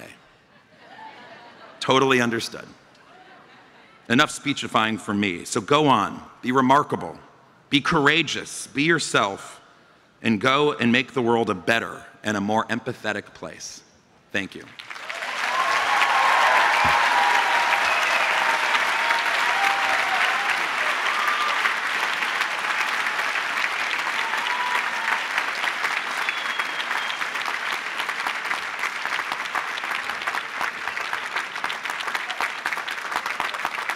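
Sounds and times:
large audience applauding: 14.7 - 33.9.

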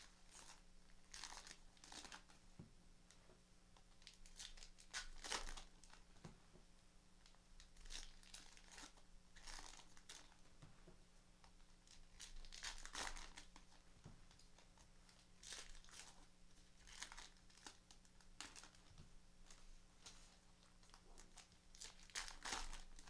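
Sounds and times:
wrappers tearing and crinkling: 0.0 - 2.4, 4.0 - 6.1, 7.2 - 10.4, 11.8 - 18.9, 20.7 - 23.0.

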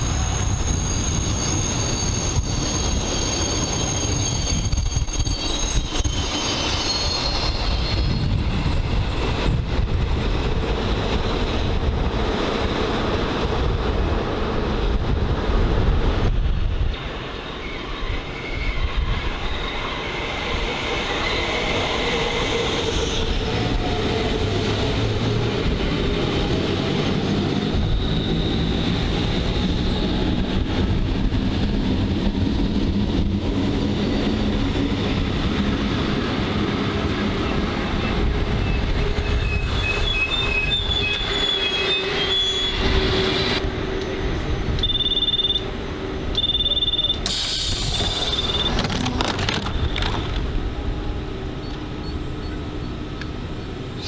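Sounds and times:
high brake squeals: 0.0 - 8.4, 17.4 - 20.2, 38.0 - 43.6, 44.7 - 45.7, 46.3 - 48.9
wheel squeal: 0.0 - 8.5, 17.4 - 20.3, 38.6 - 43.6, 46.4 - 50.4
train wheel-on-rail rumble: 0.0 - 54.0
short high beeps: 44.8 - 45.7, 46.4 - 47.3, 48.2 - 48.8.

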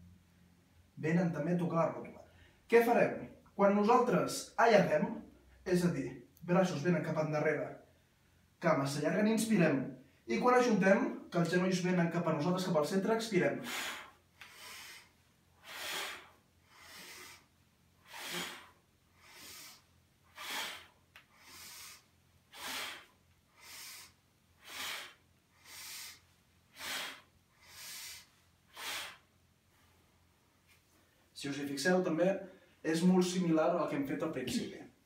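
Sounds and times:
man breathing: 13.6 - 30.3.

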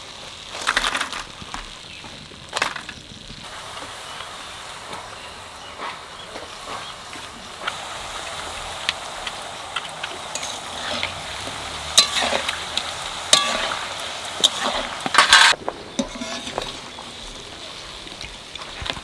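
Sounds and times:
dough sizzling in hot oil: 0.0 - 19.0
ladle knocking and scraping pan: 12.0 - 17.0.

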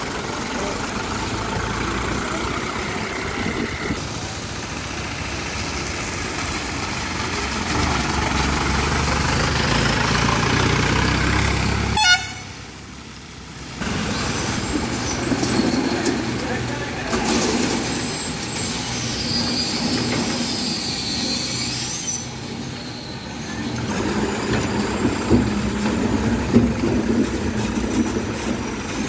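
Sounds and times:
diesel truck engines rumbling: 0.0 - 29.0
short horn toot: 12.0 - 12.6.

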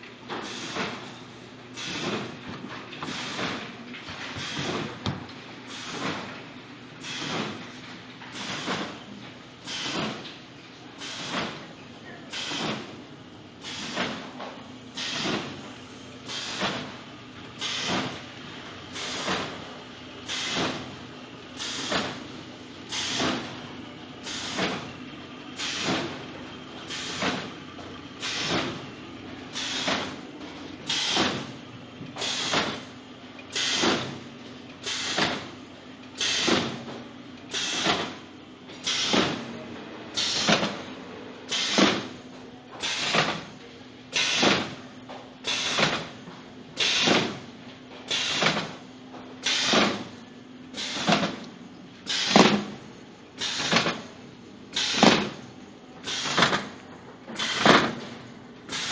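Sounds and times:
steady machine hum: 0.0 - 58.9.

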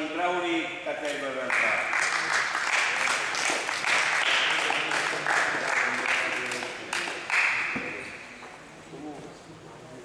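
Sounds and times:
group applauding: 1.3 - 8.2.

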